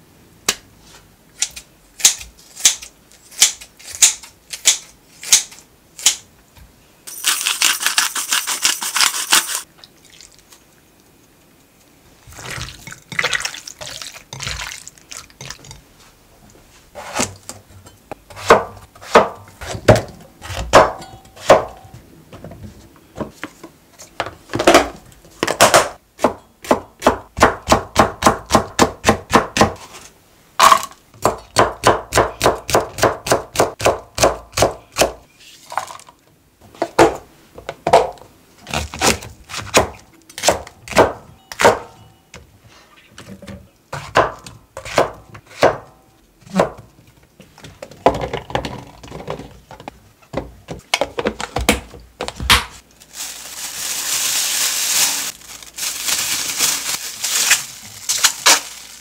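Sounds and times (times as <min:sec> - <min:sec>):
knocks and clinks of handling: 0:07.1 - 0:09.7
knife chopping on cutting board: 0:18.3 - 0:21.8, 0:43.9 - 0:45.9.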